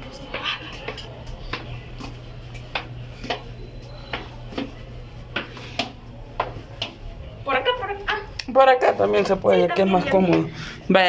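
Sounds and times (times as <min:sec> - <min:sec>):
footsteps on hard floor: 0:00.0 - 0:07.1.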